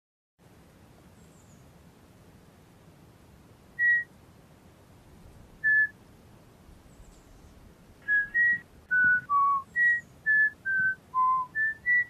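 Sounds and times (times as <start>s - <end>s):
faint hiss: 0.4s - 12.0s
whistled bird tweets: 3.8s - 4.1s, 5.6s - 6.0s, 6.9s - 12.0s.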